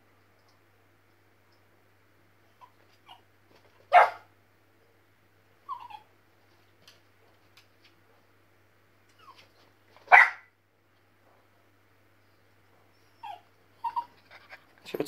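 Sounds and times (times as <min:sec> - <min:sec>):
puppy whimpering: 0:02.6 - 0:03.2, 0:05.7 - 0:06.1, 0:13.0 - 0:14.7
puppy barking sharply: 0:03.9 - 0:04.3, 0:10.1 - 0:10.5.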